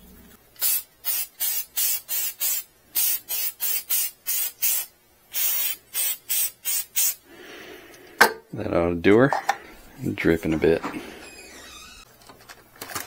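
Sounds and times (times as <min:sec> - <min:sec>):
aerosol can spraying: 0:00.6 - 0:07.2.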